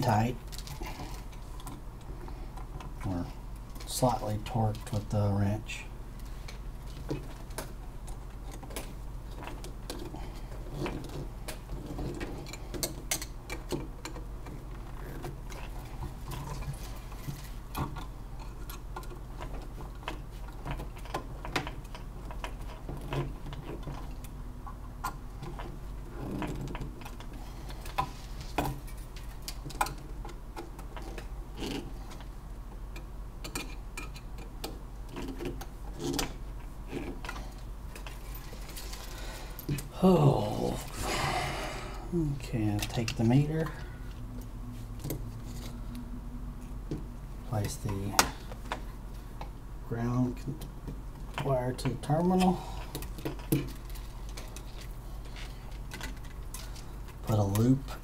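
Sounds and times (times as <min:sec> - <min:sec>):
steady low hum: 0:00.0 - 0:58.0
tools clicking and tapping: 0:10.8 - 0:14.6, 0:32.9 - 0:36.3.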